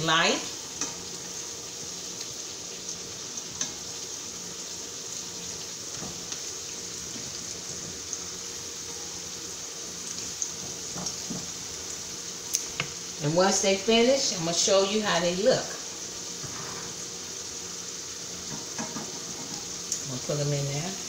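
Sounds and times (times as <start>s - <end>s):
slices sizzling in hot oil: 0.0s - 21.0s.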